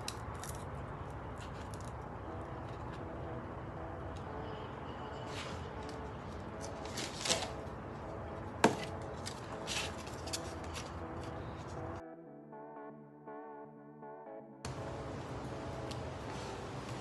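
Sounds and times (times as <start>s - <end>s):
soft background music: 0.0s - 17.0s
paper crackling: 5.3s - 7.8s, 8.8s - 11.8s.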